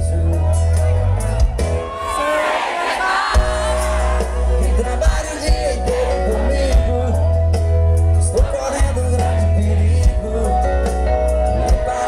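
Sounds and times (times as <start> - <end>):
heavy bass: 0.0 - 2.0, 3.2 - 12.0
drums: 0.0 - 12.0
man singing lead vocal: 2.0 - 12.0
keyboard: 3.3 - 12.0.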